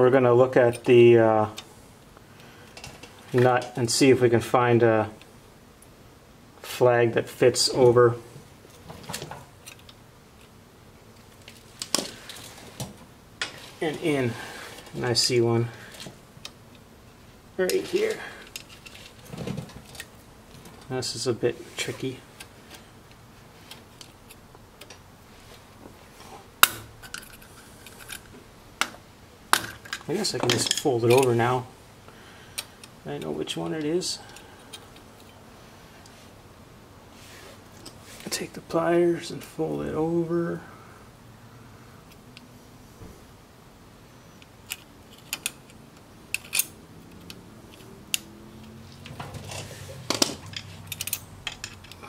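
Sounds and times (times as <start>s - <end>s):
rustling: 8.3s - 24.5s, 48.7s - 52.0s
metal tools clinking: 29.6s - 31.5s, 49.0s - 52.0s
hand tools clinking on metal: 50.1s - 52.0s.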